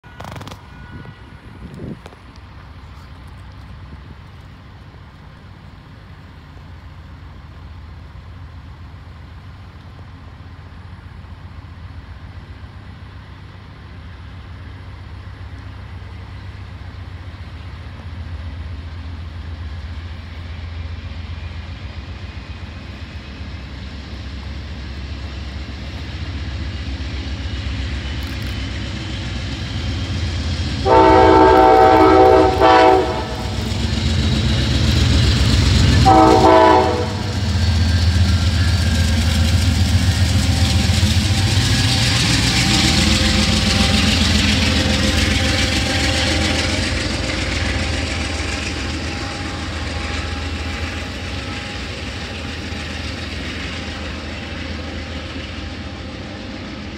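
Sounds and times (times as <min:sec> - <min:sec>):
train air horn blast: 0:00.0 - 0:01.7, 0:30.8 - 0:33.6, 0:36.0 - 0:37.4, 0:41.5 - 0:48.0
locomotive engine rumble: 0:00.0 - 0:56.9.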